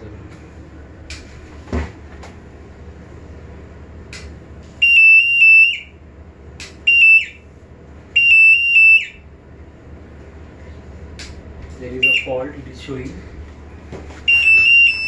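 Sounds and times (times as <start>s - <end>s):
sharp clicks: 4.1s - 4.4s
high-pitched electronic beeps: 14.3s - 15.0s.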